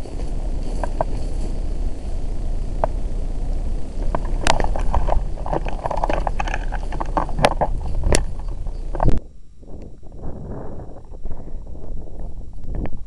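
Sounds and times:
footsteps crunching dry leaves: 0.0 - 9.0
brush rustling: 0.0 - 9.2
low wind rumble: 0.0 - 13.0
microphone handling noise: 0.0 - 13.0
twigs snapping: 4.0 - 9.2.

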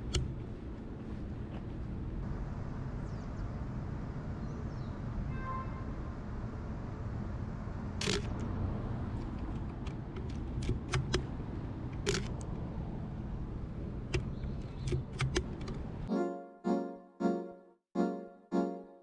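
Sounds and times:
city background rumble: 0.0 - 16.1
sharp clicks and ticks: 9.2 - 11.3, 14.1 - 15.8
piano music: 16.1 - 19.0.

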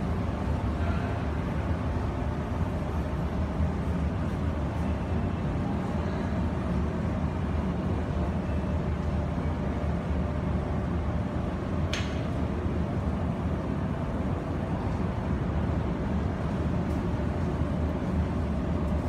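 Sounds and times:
low indoor hall background noise: 0.0 - 19.0
short sharp click: 11.9 - 12.2.

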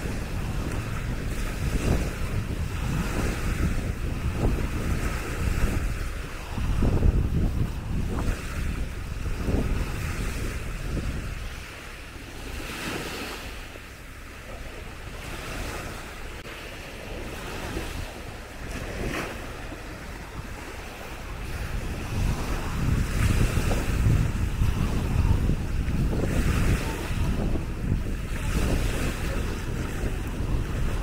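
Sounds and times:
small waves washing on sand: 0.0 - 31.0
wind buffeting microphone: 0.0 - 31.0.

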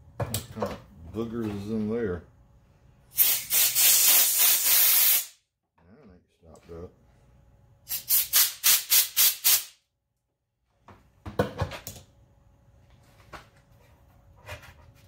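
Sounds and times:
air hissing through hose: 3.2 - 5.4.

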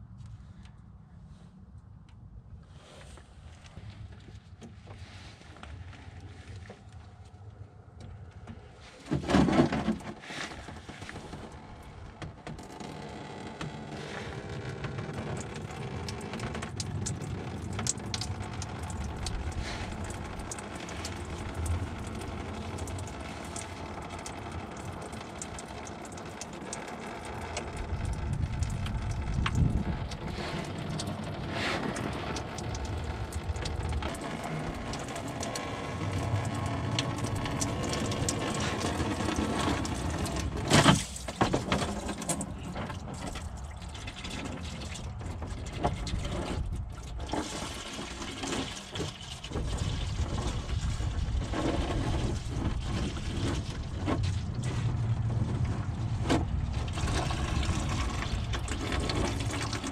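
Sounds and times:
liquid trickling into a pan: 56.0 - 59.9.

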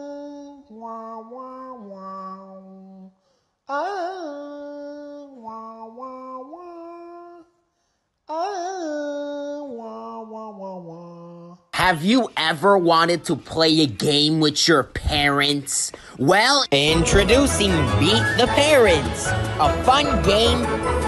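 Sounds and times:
man singing wailing phrase: 16.8 - 20.7.

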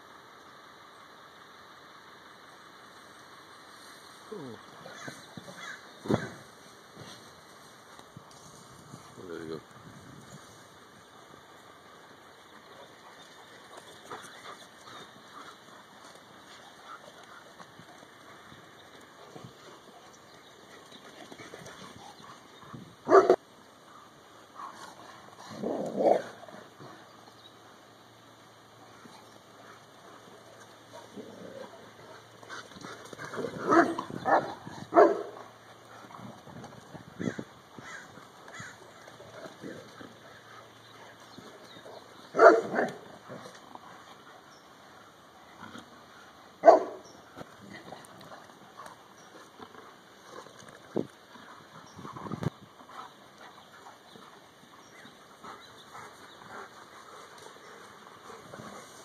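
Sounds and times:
dog barking: 23.1 - 23.4, 33.7 - 35.4, 42.4 - 43.0, 46.6 - 47.0.

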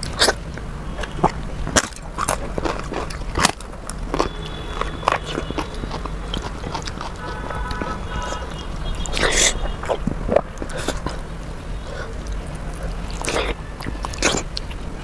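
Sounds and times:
chewing soft food: 0.0 - 15.0
crisp papad crunching: 1.1 - 8.0.

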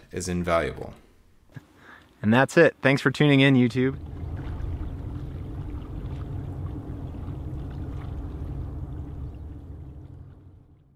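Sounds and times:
steady low rumble: 3.7 - 10.9
water lapping and splashing: 3.8 - 10.9.

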